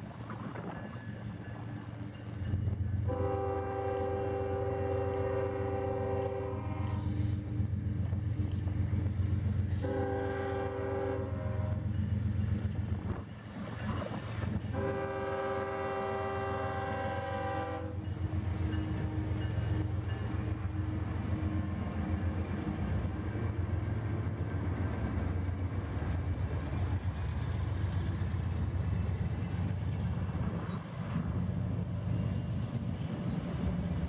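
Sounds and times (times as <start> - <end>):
train air horn blasts: 3.1 - 7.3, 9.7 - 11.8, 14.6 - 18.1.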